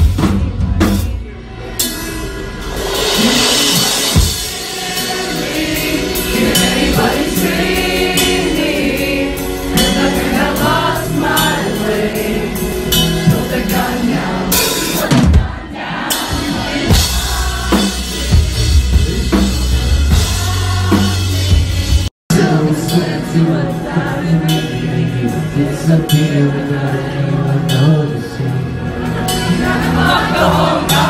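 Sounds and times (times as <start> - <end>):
live rock band playing: 0.0 - 31.0
person singing: 0.1 - 21.6, 22.3 - 31.0
cymbal crashes: 1.8 - 7.5.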